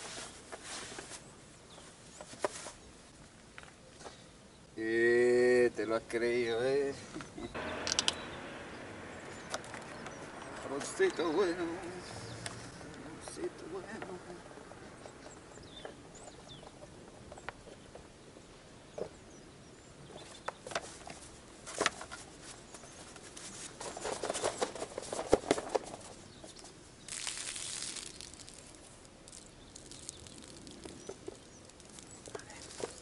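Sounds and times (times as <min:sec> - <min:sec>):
diving gear rustling and knocking: 0:27.1 - 0:33.0.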